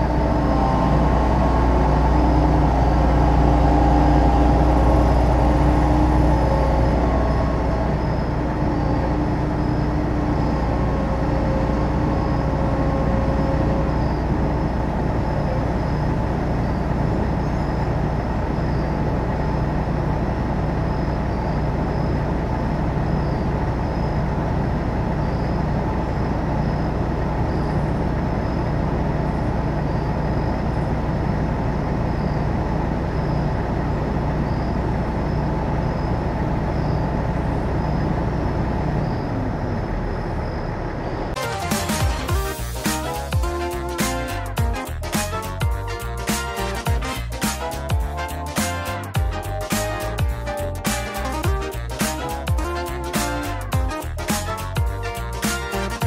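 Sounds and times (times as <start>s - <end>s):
faint pulsing high tone: 0.0s - 19.1s
combine engine drone: 0.0s - 56.0s.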